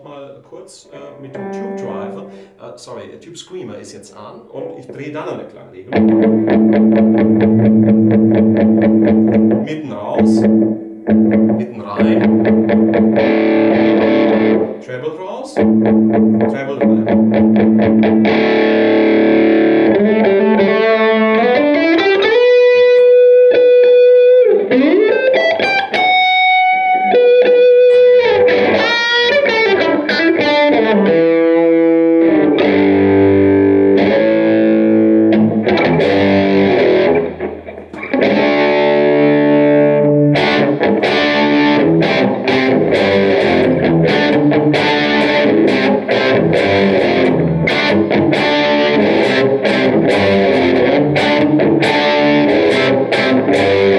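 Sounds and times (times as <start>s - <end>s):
strummed guitar chords: 1.0s - 2.6s, 5.9s - 14.8s, 15.6s - 53.9s
overdriven electric guitar lead: 1.2s - 2.6s, 5.9s - 9.6s, 10.2s - 14.8s, 15.6s - 53.9s.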